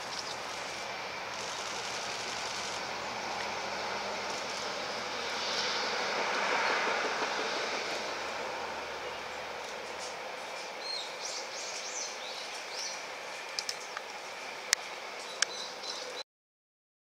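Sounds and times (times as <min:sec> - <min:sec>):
train wheels rushing on rail: 0:00.0 - 0:15.2.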